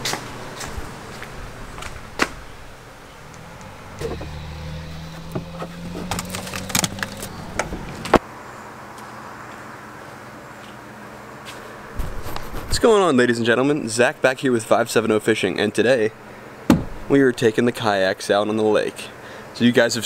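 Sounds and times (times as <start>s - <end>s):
low motor hum: 0.0s - 8.2s
gear clicks and knocks: 5.2s - 8.2s.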